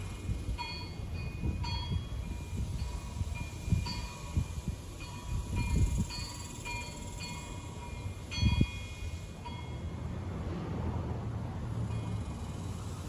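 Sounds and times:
wind gusting against microphone: 0:00.0 - 0:12.0
wind chimes ringing: 0:00.6 - 0:10.0.

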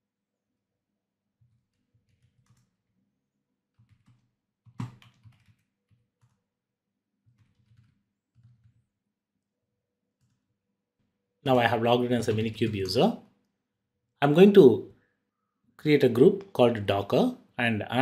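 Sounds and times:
computer keyboard typing: 0:01.4 - 0:02.9, 0:03.7 - 0:06.5, 0:07.2 - 0:08.9, 0:10.2 - 0:10.5.

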